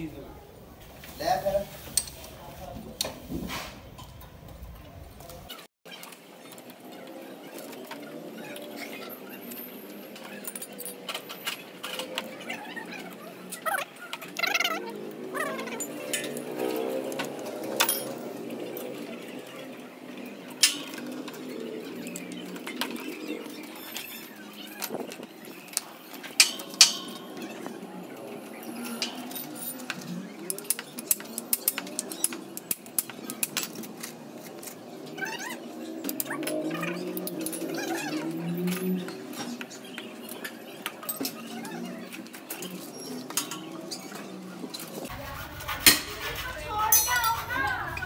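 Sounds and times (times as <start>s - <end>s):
metal parts clinking on concrete: 15.4s - 18.9s, 25.7s - 27.7s, 28.4s - 35.1s, 46.9s - 48.0s.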